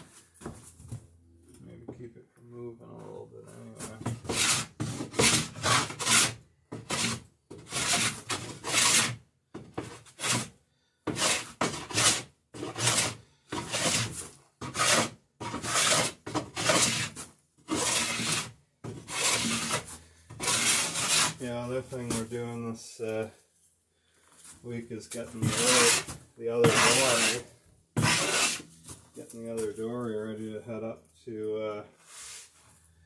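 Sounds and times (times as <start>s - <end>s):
hand plane shaving wood: 4.0s - 9.2s, 9.8s - 21.4s, 25.2s - 28.6s.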